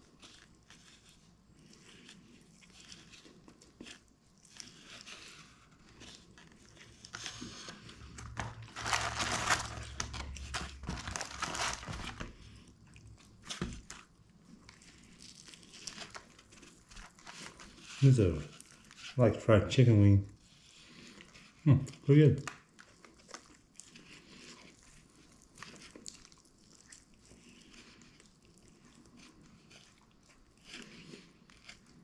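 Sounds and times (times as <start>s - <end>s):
paper crinkling: 0.0s - 19.3s
crunching and chewing: 0.0s - 32.0s.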